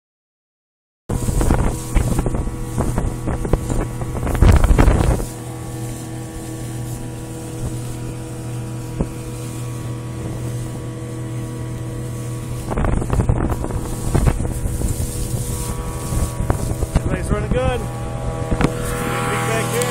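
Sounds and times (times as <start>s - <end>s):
outboard motor running: 1.1s - 19.9s
wind buffeting microphone: 1.1s - 19.9s.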